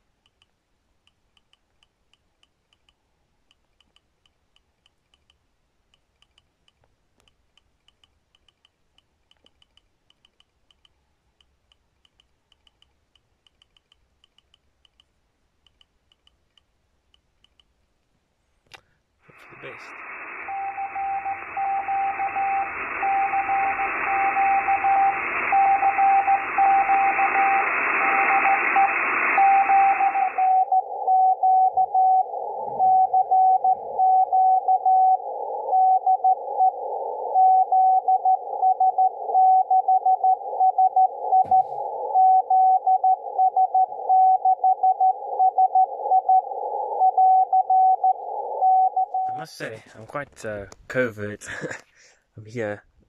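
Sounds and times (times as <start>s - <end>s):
radio band hiss: 19.2s - 39.4s, 40.2s - 51.8s
morse code tone: 20.4s - 49.4s.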